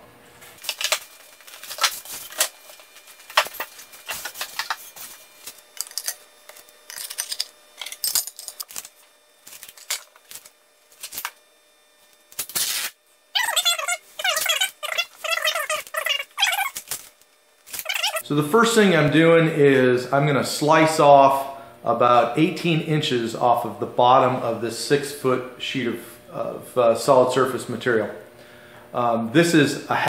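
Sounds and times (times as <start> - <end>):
masking tape pulled off roll: 12.3 - 13.0.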